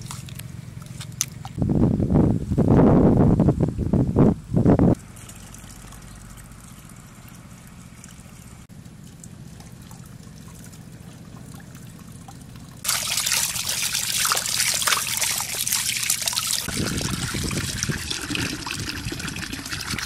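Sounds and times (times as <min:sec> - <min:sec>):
water splashing into steel bowl: 0:12.8 - 0:20.0
hands rubbing and rinsing squid: 0:12.9 - 0:16.7.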